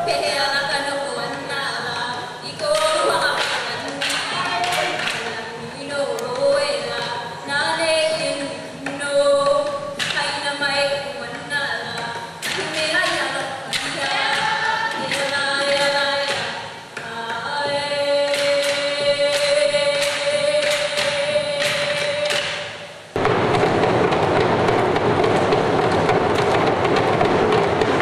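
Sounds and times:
drum beats: 0:00.0 - 0:28.0
loud dense noise: 0:00.0 - 0:28.0
group chant singing: 0:13.6 - 0:16.5.

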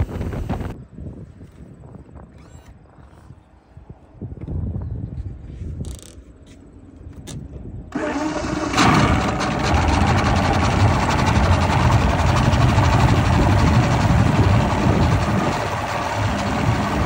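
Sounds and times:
outboard motor idling: 0:08.0 - 0:17.0
water churning: 0:08.0 - 0:17.0.

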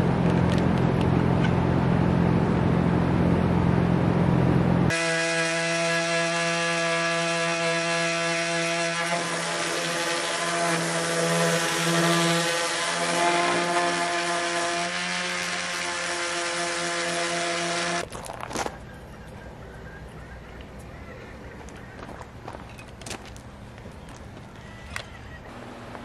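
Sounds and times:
orbital sander sanding wood: 0:04.9 - 0:18.0.

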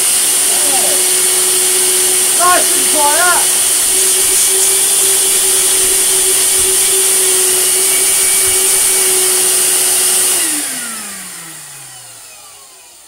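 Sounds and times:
vacuum cleaner running: 0:00.0 - 0:13.0
vacuum motor winding down: 0:00.0 - 0:13.0.

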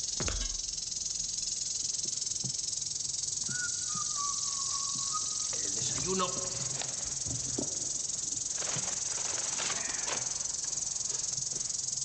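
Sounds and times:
high-pitched tape hiss: 0:00.0 - 0:12.0
dull thump: 0:00.1 - 0:00.8
faint whistling tone: 0:03.4 - 0:06.7.

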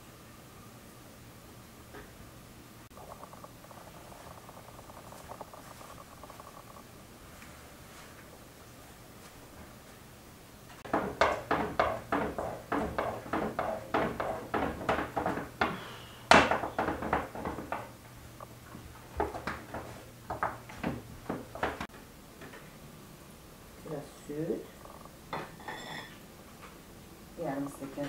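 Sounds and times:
rolling pin knocking on board: 0:10.8 - 0:18.0.

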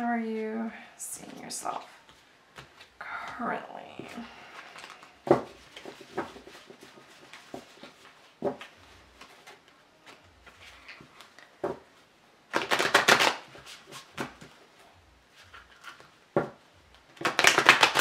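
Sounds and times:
cards being shuffled: 0:01.8 - 0:03.0, 0:04.0 - 0:11.8, 0:12.5 - 0:14.6, 0:15.3 - 0:18.0.

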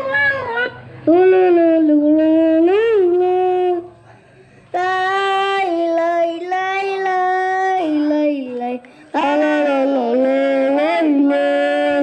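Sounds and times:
boy singing into microphone: 0:00.0 - 0:04.0, 0:04.7 - 0:12.0.

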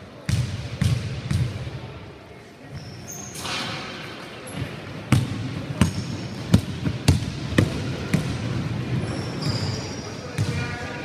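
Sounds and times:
short high squeak: 0:02.8 - 0:03.6, 0:09.1 - 0:10.1
basketball bouncing on wooden floor: 0:05.1 - 0:08.4.

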